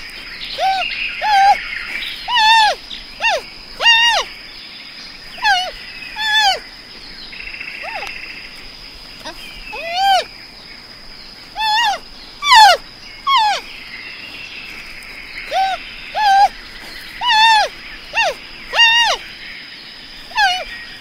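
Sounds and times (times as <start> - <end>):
animal calling: 0.0 - 4.4, 5.2 - 6.7, 7.5 - 8.5, 9.2 - 10.3, 11.4 - 19.4, 20.2 - 21.0.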